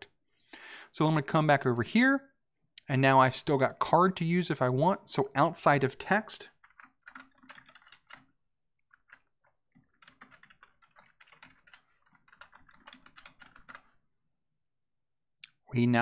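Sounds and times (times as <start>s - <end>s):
typing on computer keyboard: 6.6s - 14.0s.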